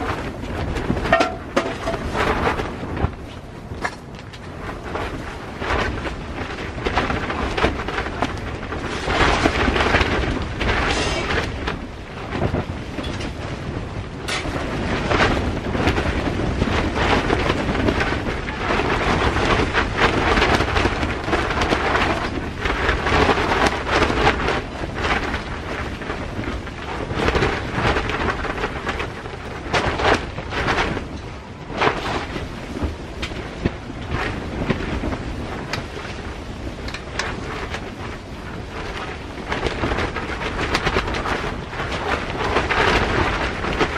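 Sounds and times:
strong wind gusts roaring: 0.0s - 43.9s
tent fabric snapping and flapping: 0.0s - 43.9s.

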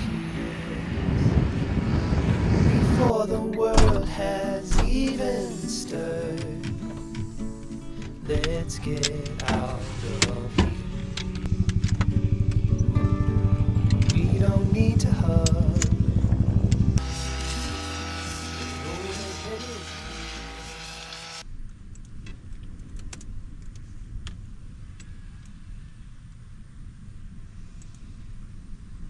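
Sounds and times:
wind rumble on microphone: 0.0s - 4.2s, 8.2s - 17.0s, 21.5s - 29.0s
background music with steady pulse: 3.1s - 21.4s.

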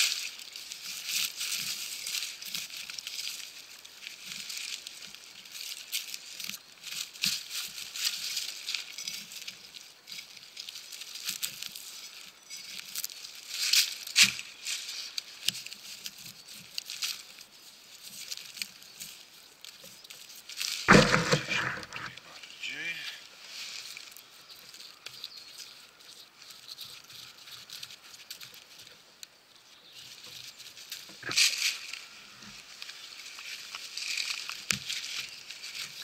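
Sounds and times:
loud knock: 20.9s - 22.1s.

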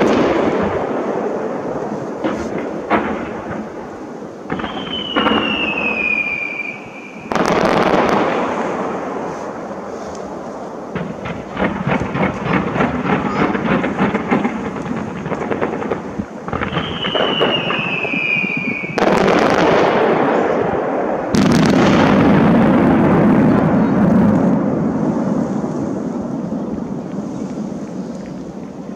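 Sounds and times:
heavy firework booms rumbling: 0.0s - 27.8s
fireworks crackling pops: 0.0s - 28.9s
firework whistle falling in pitch: 4.5s - 7.3s, 16.6s - 19.1s.

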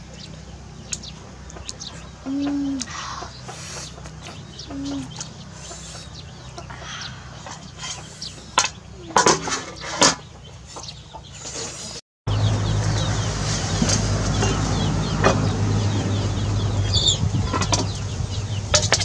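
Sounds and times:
short chirping calls: 0.0s - 9.1s, 14.3s - 18.7s
chickens clucking: 0.0s - 19.0s.

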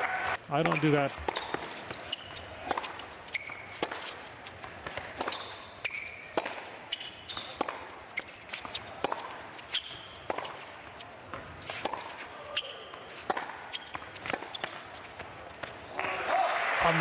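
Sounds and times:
shoes squeaking on court: 0.4s - 16.0s
tennis ball hits and bounces: 0.6s - 16.1s.

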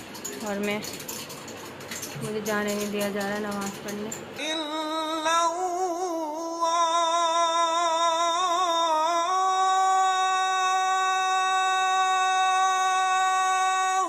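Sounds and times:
person chanting call to prayer: 4.4s - 14.0s.

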